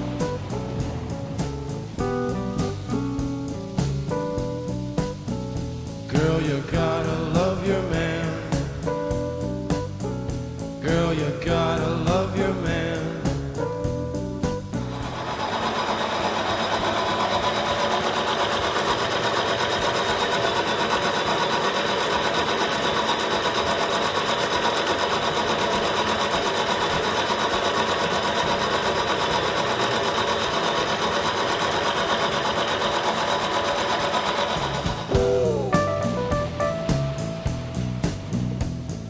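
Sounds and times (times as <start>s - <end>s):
milling machine cutting metal: 14.9s - 35.2s.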